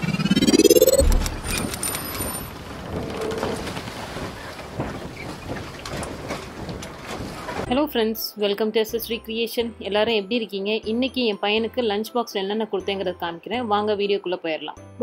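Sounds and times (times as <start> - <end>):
rising swoosh tone: 0.0 - 2.0.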